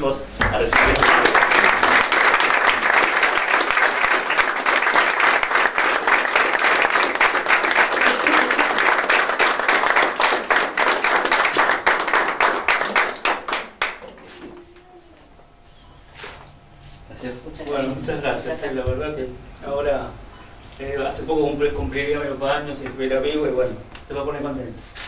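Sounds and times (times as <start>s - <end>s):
audience applauding: 0.4s - 14.0s.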